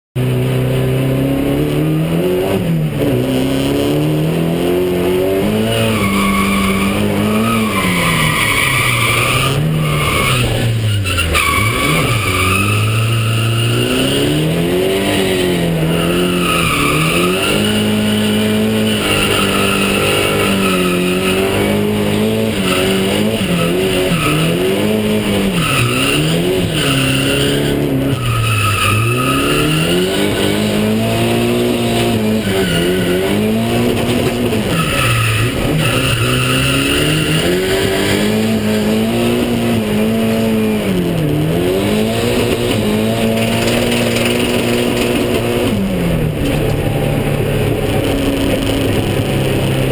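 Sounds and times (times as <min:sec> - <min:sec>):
car engine revving: 0:00.2 - 0:49.9
tyres squealing: 0:05.6 - 0:14.3, 0:15.0 - 0:39.6.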